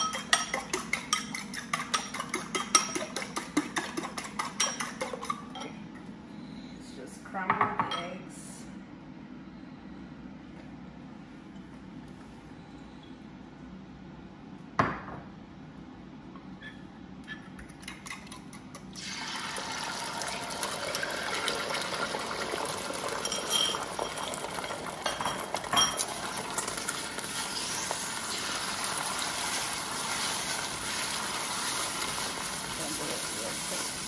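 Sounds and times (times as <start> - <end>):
eggs sizzling in hot oil: 18.9 - 34.0
bowl and spatula clinking on pot: 23.2 - 26.2.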